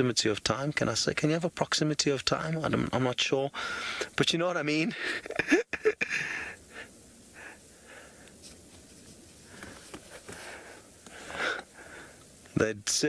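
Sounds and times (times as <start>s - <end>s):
person breathing: 3.5s - 4.2s, 4.9s - 5.4s, 6.0s - 8.5s, 9.4s - 12.4s.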